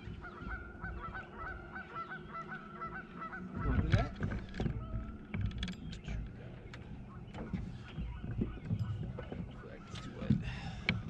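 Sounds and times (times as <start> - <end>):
geese honking: 0.0 - 4.2.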